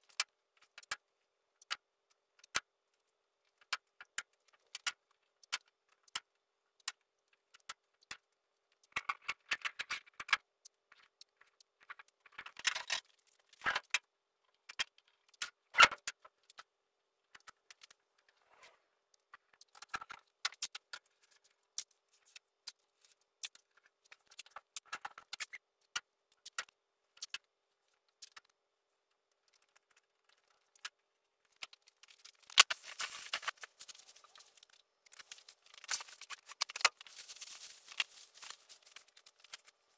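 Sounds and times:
tape clicks: 0:29.4 - 0:39.8
paper crinkling rustle: 0:29.5 - 0:39.9.

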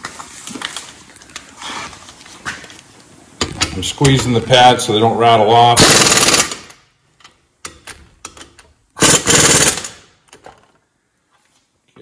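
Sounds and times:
air impact wrench hammering: 0:05.8 - 0:06.8, 0:09.0 - 0:10.1.

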